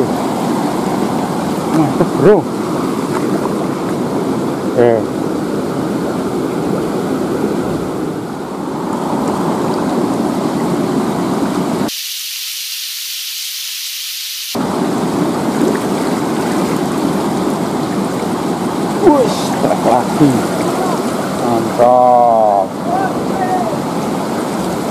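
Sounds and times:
river water rushing over rocks: 14.6 - 24.9.

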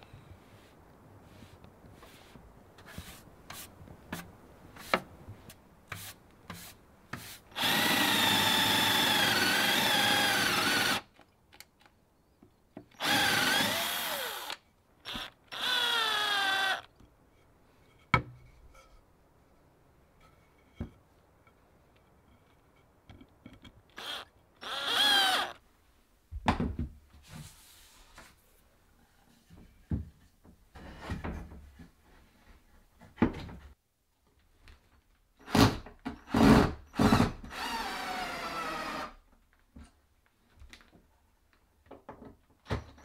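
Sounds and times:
cordless drill boring through wood: 7.6 - 11.1, 13.0 - 16.9, 24.0 - 25.6, 36.3 - 39.2.

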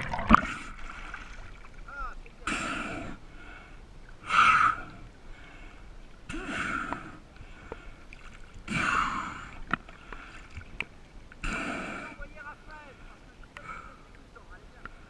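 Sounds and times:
diver breathing hard: 8.7 - 10.5.

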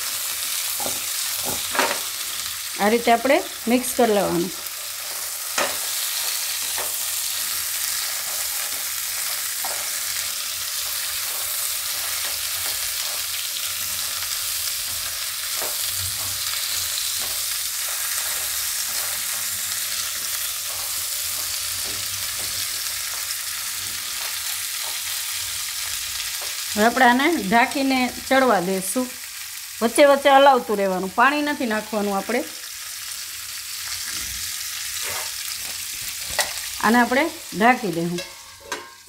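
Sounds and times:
vegetables sizzling in hot oil: 0.0 - 39.0
spatula scraping a pan: 34.9 - 36.7, 38.1 - 39.0.

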